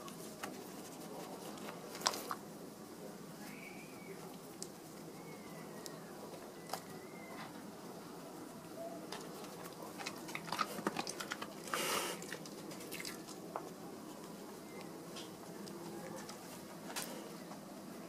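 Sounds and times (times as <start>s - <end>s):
dog crunching treats: 9.2s - 13.4s.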